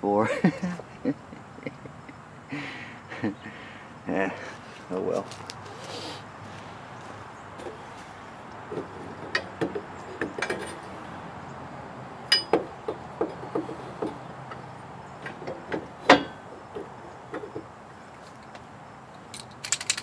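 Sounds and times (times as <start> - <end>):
metal tools clinking and knocking: 8.8 - 10.9, 12.3 - 12.7, 15.2 - 18.6, 19.2 - 20.0.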